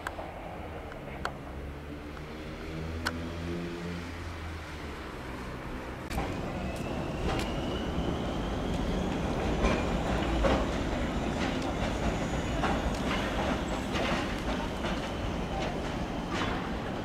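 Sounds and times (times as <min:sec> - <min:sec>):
train rumbling past: 0:00.0 - 0:17.0
wheels clicking over track joints: 0:08.7 - 0:17.0.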